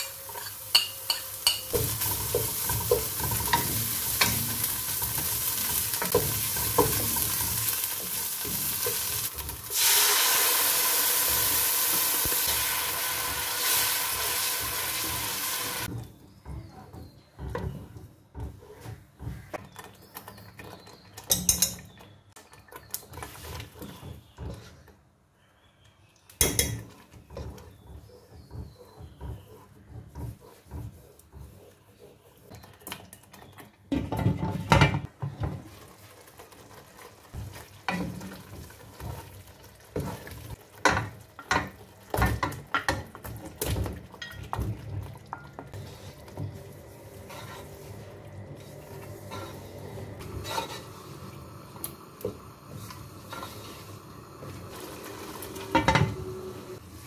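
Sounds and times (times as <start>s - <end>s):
wooden spoon scraping a pot: 0.0s - 9.9s, 13.2s - 25.0s, 26.7s - 51.4s, 52.2s - 57.0s
low sizzle from a pan: 0.0s - 16.7s, 34.0s - 57.0s.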